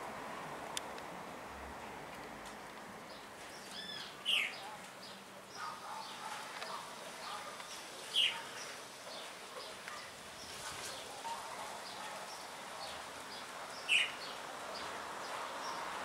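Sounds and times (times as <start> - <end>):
birds chirping: 3.0 - 16.0.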